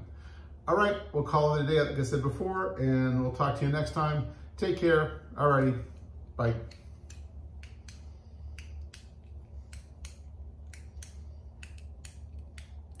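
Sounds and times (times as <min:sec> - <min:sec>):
low steady hum: 0:00.0 - 0:13.0
small handheld object clicking: 0:06.0 - 0:13.0.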